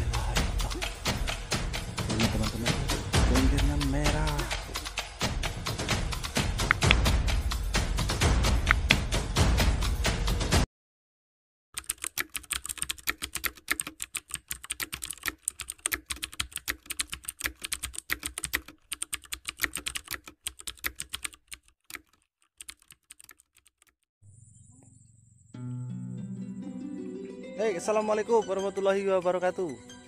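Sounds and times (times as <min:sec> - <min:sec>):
keyboard keys clicking: 0:11.8 - 0:24.0.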